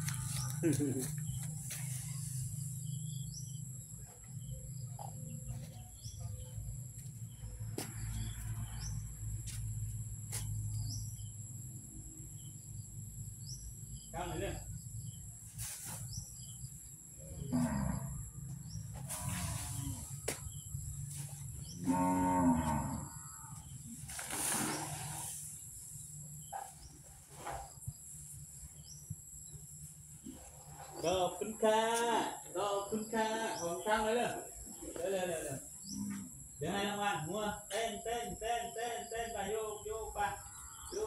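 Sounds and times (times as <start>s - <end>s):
insects trilling: 0.0s - 41.0s
elephant rumbling calls: 18.9s - 20.2s.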